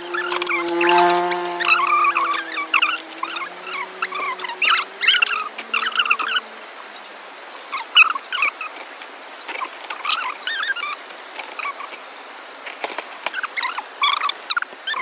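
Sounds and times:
animal trill: 0.0 - 6.5
small animal squeaky chirps: 10.0 - 11.0.

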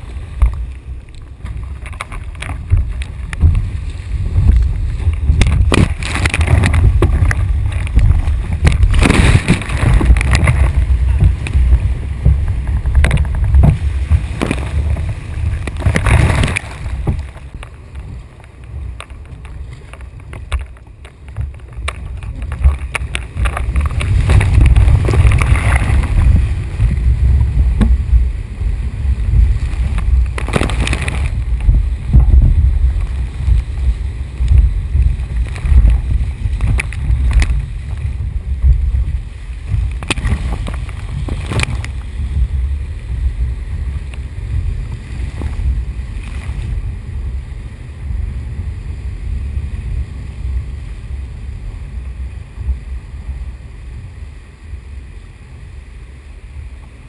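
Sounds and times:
whitewater rushing: 0.0 - 57.0
sharp water splashes: 1.9 - 12.3, 12.9 - 17.6.

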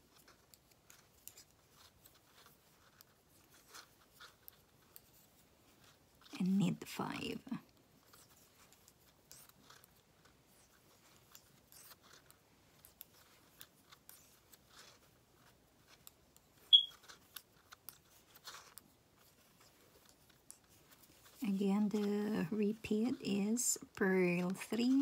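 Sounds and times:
high-pitched squeak: 16.7 - 17.0.

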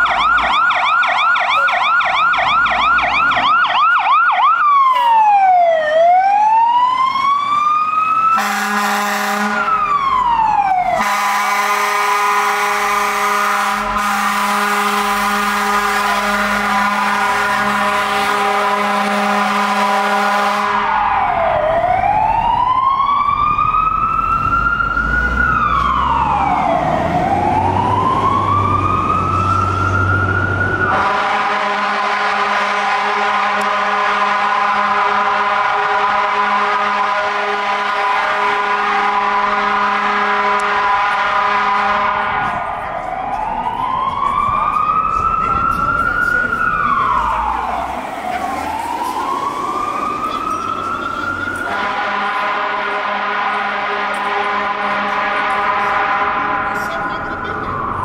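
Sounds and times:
electronic siren yelp and wail: 0.0 - 52.8, 54.6 - 58.0
air horn blasting: 8.4 - 10.0, 10.9 - 21.0, 30.9 - 42.6, 51.6 - 57.2.

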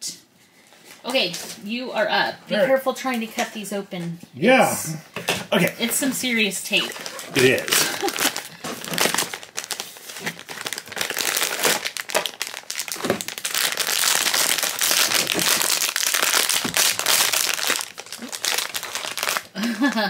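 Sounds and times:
foil packet crinkling: 6.7 - 20.0.

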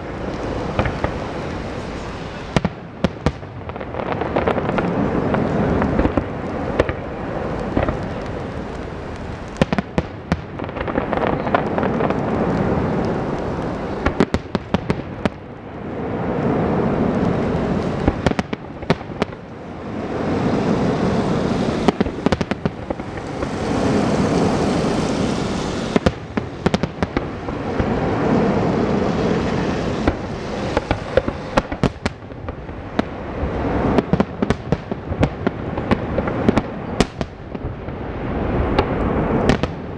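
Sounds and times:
fireworks crackle: 0.0 - 39.9.

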